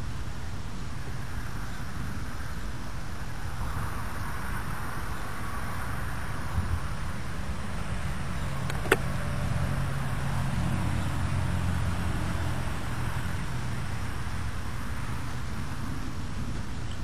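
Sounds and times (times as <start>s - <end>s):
vehicle engine hum: 1.2s - 17.0s
sharp click: 8.7s - 9.1s.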